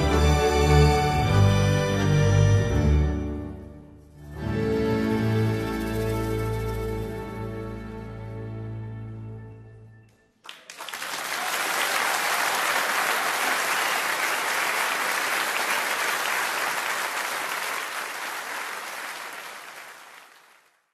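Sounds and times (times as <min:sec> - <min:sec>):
audience applauding: 0:10.4 - 0:20.9.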